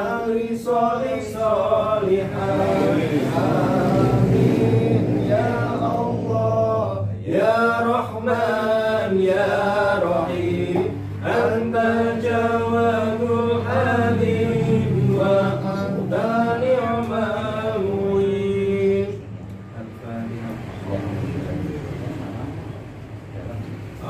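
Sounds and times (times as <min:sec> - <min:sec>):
men chanting a prayer: 0:00.0 - 0:22.5.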